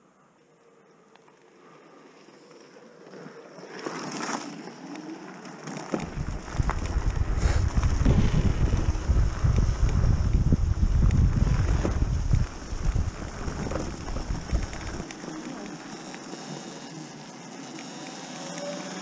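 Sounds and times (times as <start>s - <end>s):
bike rolling noise: 1.2s - 19.0s
wind buffeting microphone: 6.0s - 15.1s.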